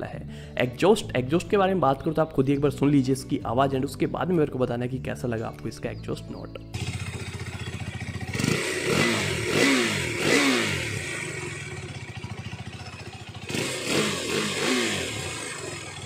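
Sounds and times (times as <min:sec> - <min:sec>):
motorcycle engine idling and revving: 0:06.7 - 0:16.0.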